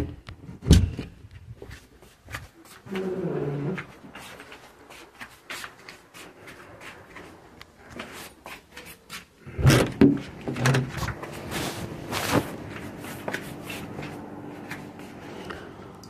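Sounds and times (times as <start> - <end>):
knocks and bumps: 9.6 - 11.2.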